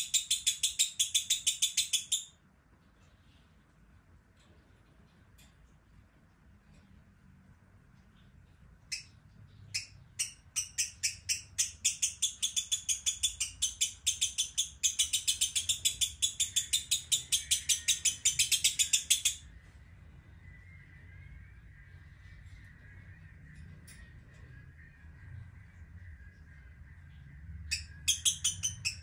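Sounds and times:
lovebird chattering chirps: 0:00.0 - 0:02.4, 0:08.9 - 0:19.5, 0:27.7 - 0:29.0.

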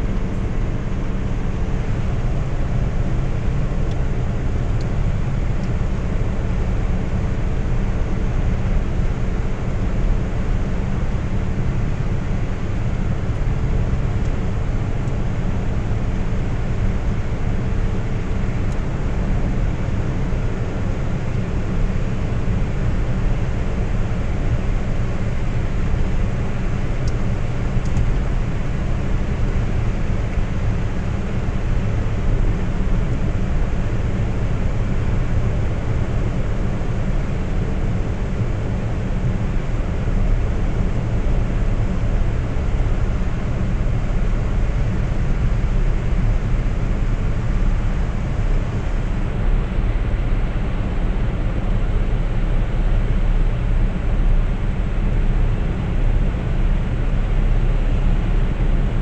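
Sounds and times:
car road and engine rumble: 0:00.0 - 0:59.0.

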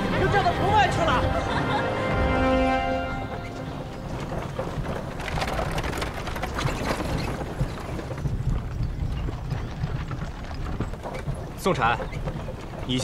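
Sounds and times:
horse cart on gravel: 0:03.0 - 0:13.0.

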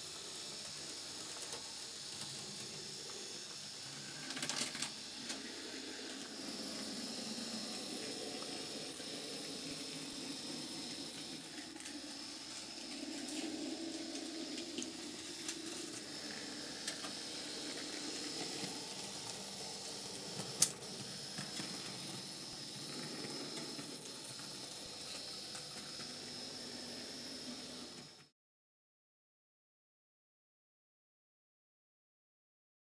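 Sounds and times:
model tram motor hiss and whine: 0:00.0 - 0:28.3
wheels clicking on track: 0:13.0 - 0:26.2.

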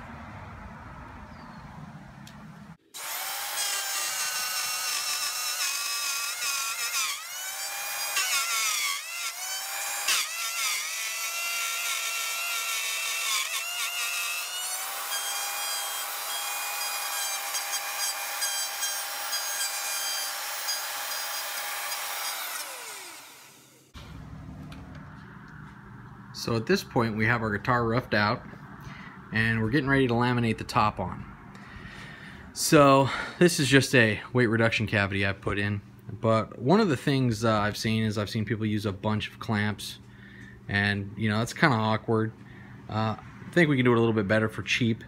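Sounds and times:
electric router whining: 0:02.2 - 0:26.5
router bit cutting wood: 0:02.9 - 0:24.0
motor spinning down: 0:20.4 - 0:26.4.

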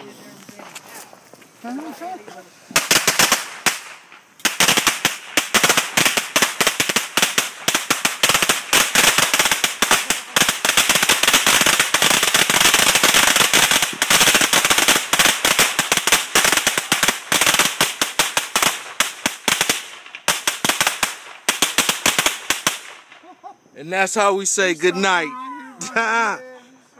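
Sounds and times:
firecrackers going off: 0:02.6 - 0:23.3.

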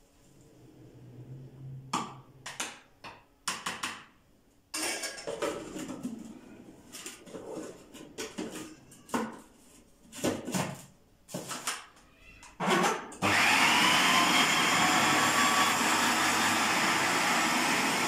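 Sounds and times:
plastic bowl and lid clattering: 0:07.1 - 0:09.5.

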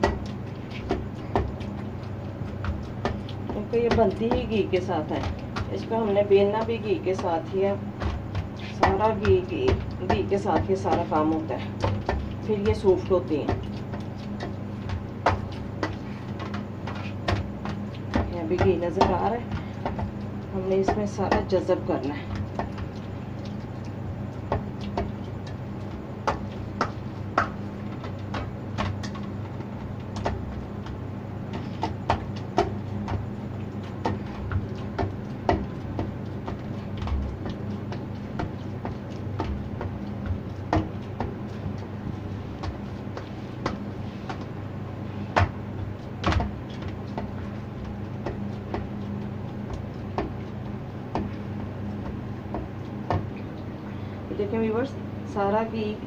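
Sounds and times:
dough knocking on steel bowl: 0:00.0 - 0:44.5
steady low hum: 0:00.0 - 0:56.0.

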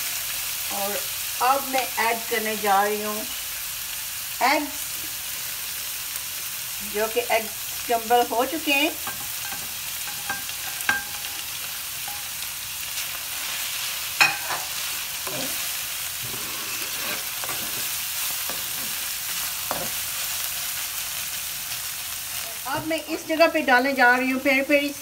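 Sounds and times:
food sizzling in a wok: 0:00.0 - 0:25.0
spatula scraping and tapping pan: 0:09.0 - 0:12.4, 0:14.2 - 0:15.6, 0:16.2 - 0:20.0.

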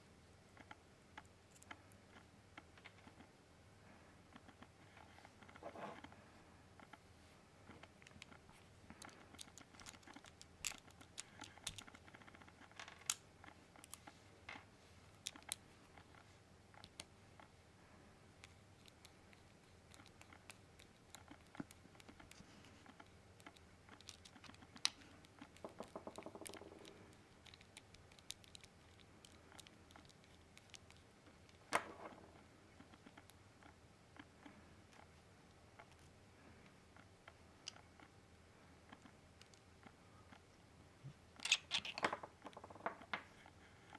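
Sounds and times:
small metal parts clicking: 0:09.0 - 0:14.1, 0:41.4 - 0:42.7.

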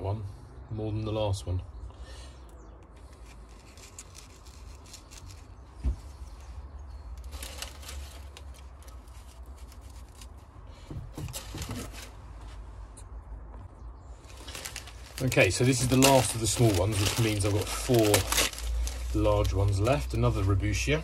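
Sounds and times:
packaging rustling: 0:03.1 - 0:10.4, 0:11.2 - 0:12.2, 0:14.2 - 0:20.4
plastic plant pots clicking: 0:07.1 - 0:10.4, 0:14.3 - 0:20.3.

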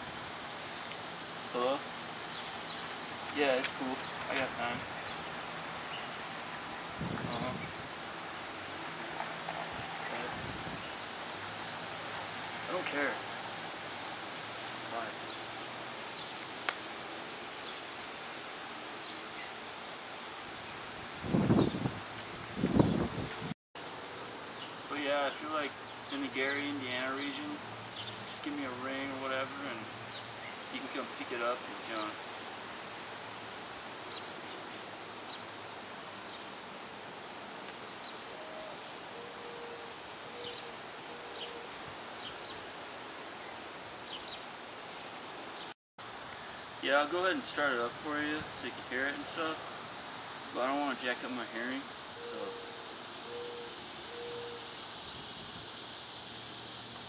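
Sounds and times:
steady outdoor hiss: 0:00.0 - 0:57.0
faint high insect ticking: 0:51.3 - 0:57.0
faint bird chirps: 0:52.2 - 0:54.7.

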